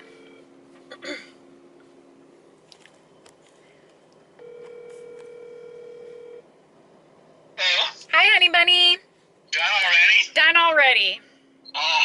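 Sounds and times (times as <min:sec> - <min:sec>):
phone ringback tone: 0:00.0 - 0:00.5, 0:04.4 - 0:06.4.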